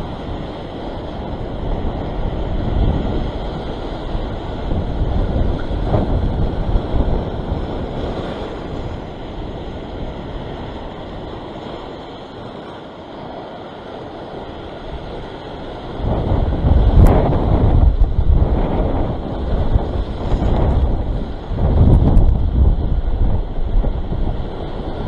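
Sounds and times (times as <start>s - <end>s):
waves breaking over rocks: 0.0s - 25.0s
wind buffeting microphone: 0.0s - 25.0s.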